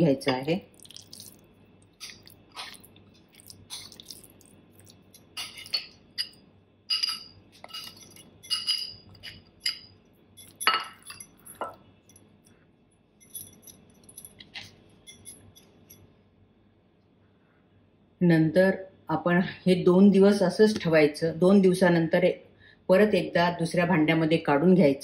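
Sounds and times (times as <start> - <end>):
metal spoon clinking on glass bowl: 5.1 - 12.2, 13.2 - 16.0.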